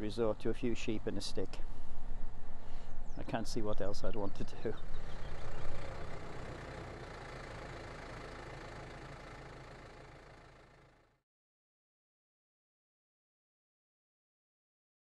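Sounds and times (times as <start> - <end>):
tractor engine running: 3.1 - 11.2.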